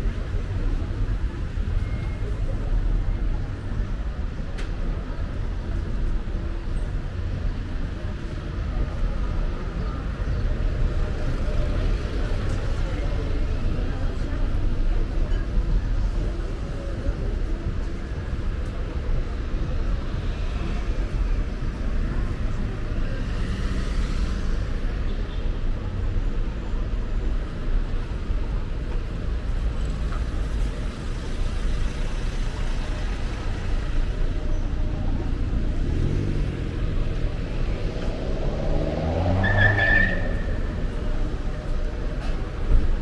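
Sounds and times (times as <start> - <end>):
passing cars rumbling: 27.5 - 43.0
vehicle engine accelerating: 35.2 - 39.7.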